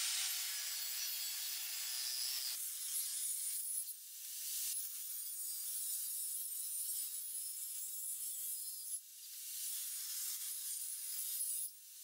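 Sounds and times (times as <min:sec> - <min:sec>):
table saw cutting wood: 0:00.0 - 0:03.5.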